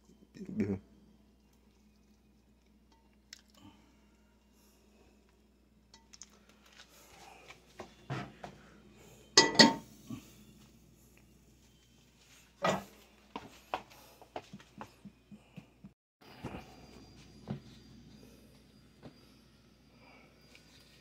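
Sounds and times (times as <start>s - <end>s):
metal pot clanking on stove grate: 9.4s - 9.9s.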